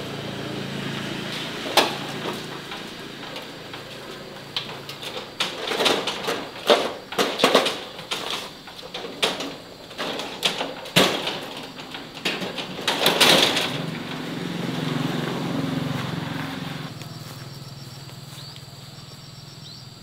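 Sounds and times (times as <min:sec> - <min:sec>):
small engine running: 0:00.0 - 0:06.5, 0:11.3 - 0:20.0
sharp knocks and clatters: 0:01.3 - 0:16.6.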